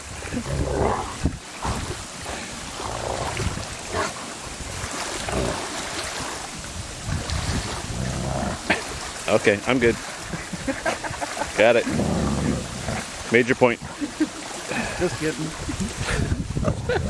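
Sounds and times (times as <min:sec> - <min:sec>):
wind noise on microphone: 0:00.0 - 0:09.2, 0:14.7 - 0:17.0
dogs scuffling and growling: 0:00.2 - 0:06.5.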